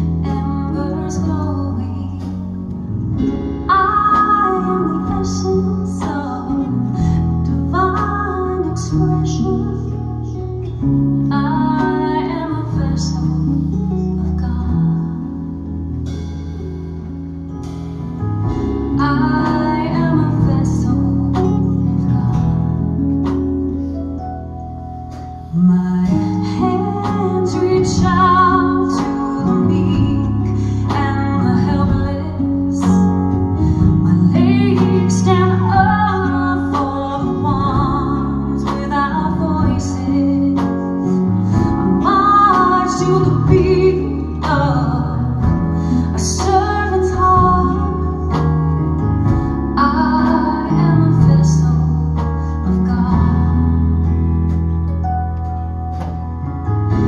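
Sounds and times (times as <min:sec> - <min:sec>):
electric guitar chords: 0:00.0 - 0:57.0
woman singing with vibrato: 0:03.6 - 0:10.4, 0:19.0 - 0:22.7, 0:25.5 - 0:48.4, 0:49.8 - 0:53.8.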